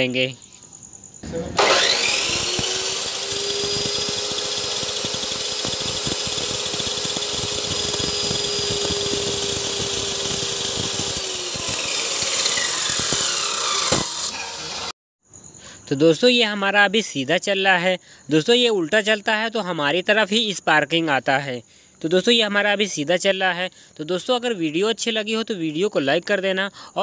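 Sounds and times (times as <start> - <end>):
cutting wheel grinding metal rod: 1.2 - 14.9
chop saw whining: 1.2 - 15.0.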